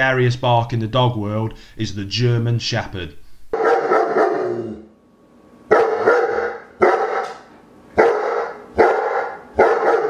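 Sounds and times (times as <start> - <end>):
dog barking: 3.5 - 4.6, 5.7 - 10.0.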